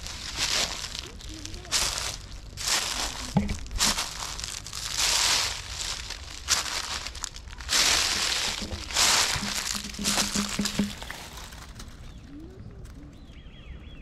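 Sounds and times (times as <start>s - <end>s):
footsteps crunching dry leaves: 0.0s - 12.3s.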